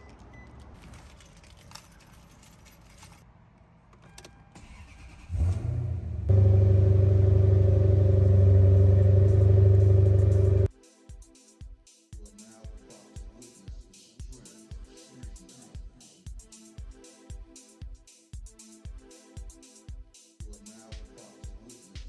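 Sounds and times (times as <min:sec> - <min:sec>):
car keys clicking and rattling: 0:00.1 - 0:03.3
car engine idling: 0:06.3 - 0:10.7.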